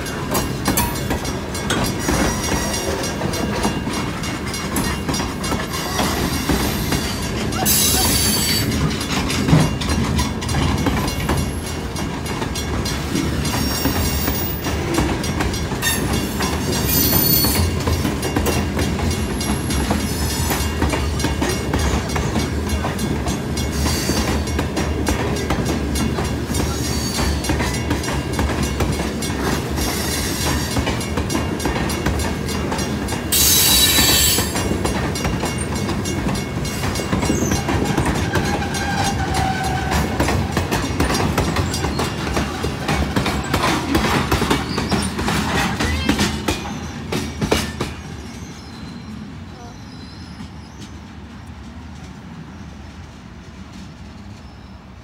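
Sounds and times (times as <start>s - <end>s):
train wheels rumbling on rails: 0.0s - 55.0s
high wheel squeals: 5.5s - 8.9s, 13.3s - 14.7s, 15.8s - 17.8s, 26.7s - 27.5s, 33.3s - 34.6s, 37.0s - 42.3s, 44.4s - 45.8s, 47.9s - 51.0s.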